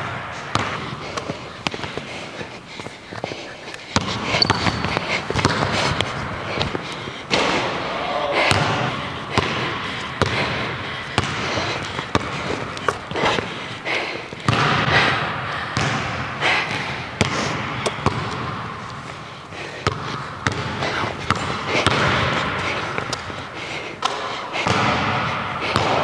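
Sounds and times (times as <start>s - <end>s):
basketball bouncing on hardwood floor: 0.1s - 2.1s, 3.9s - 7.6s, 8.5s - 13.5s, 14.4s - 15.0s, 15.8s - 18.7s, 19.8s - 23.2s, 24.6s - 26.0s.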